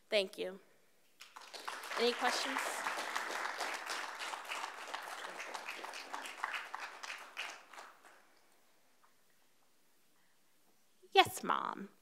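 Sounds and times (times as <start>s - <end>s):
audience applauding: 1.2s - 8.5s.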